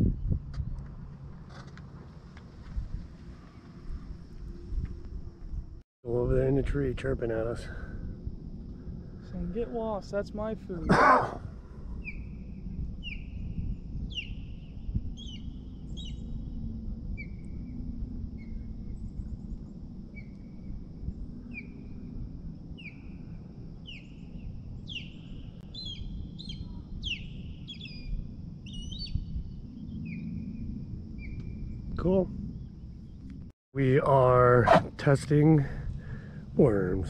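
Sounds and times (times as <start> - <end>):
bird chirping: 11.9 - 16.6, 22.8 - 33.3.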